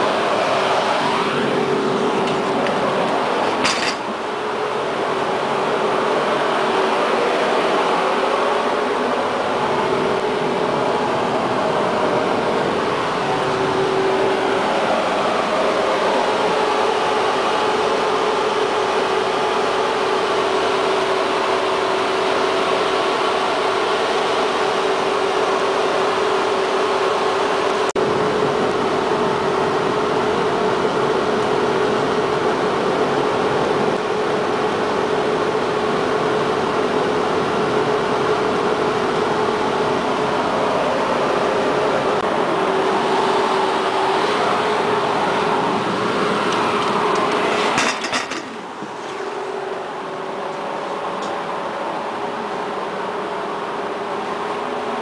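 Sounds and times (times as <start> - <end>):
tram running rumble: 0.0 - 19.0
continuous whine: 0.0 - 55.0.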